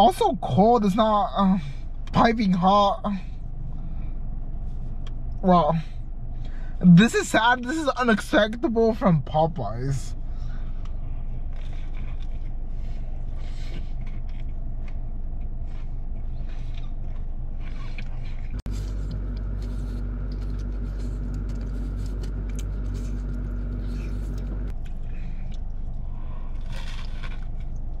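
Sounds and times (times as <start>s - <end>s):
car idling hum: 0.0s - 28.0s
sandwich wrapper rustling: 16.4s - 24.7s, 26.6s - 27.8s.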